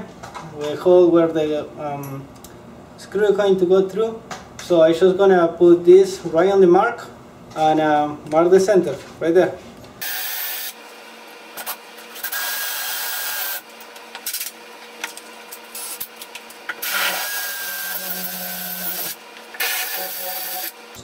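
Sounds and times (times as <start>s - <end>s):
cordless drill whining: 16.8s - 20.8s.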